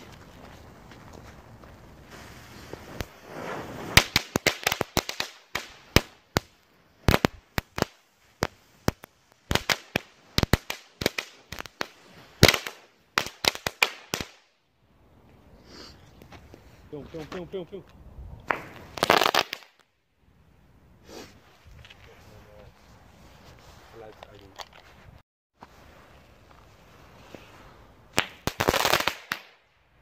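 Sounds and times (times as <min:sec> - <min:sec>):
firework crackling pops: 0:00.0 - 0:14.5, 0:18.4 - 0:19.9, 0:26.4 - 0:29.8
firework hissing sparks: 0:02.0 - 0:14.1.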